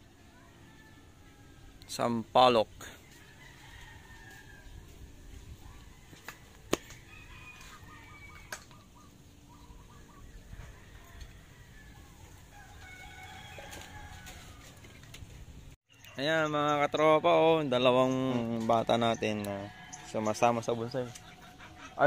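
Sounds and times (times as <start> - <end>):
chickens calling: 0.0 - 22.0.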